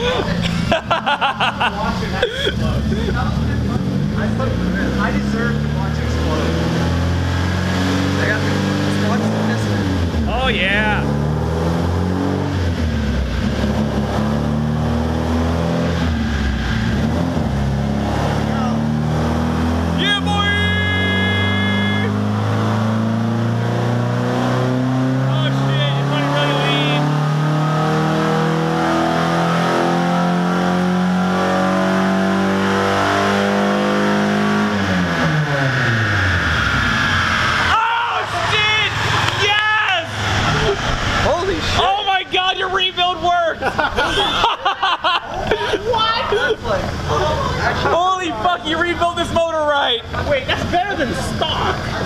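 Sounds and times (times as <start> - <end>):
car engine running on dyno: 0.0 - 20.2, 22.0 - 42.2.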